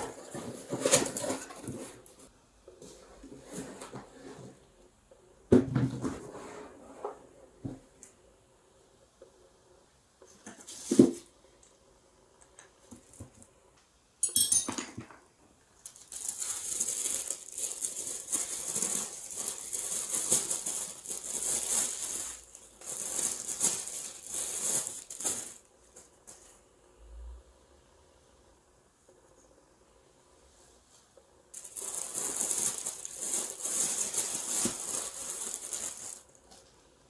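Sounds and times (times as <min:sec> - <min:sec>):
tissue paper rustling: 0:15.9 - 0:25.7, 0:31.5 - 0:36.5.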